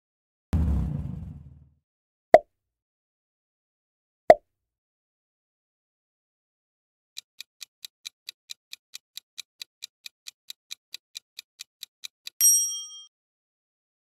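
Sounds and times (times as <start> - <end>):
clock ticking: 7.2 - 12.4.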